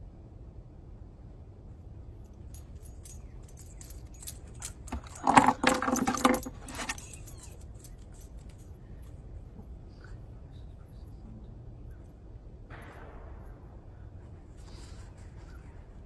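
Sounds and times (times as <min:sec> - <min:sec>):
small metal pieces jingling: 0:02.5 - 0:08.8.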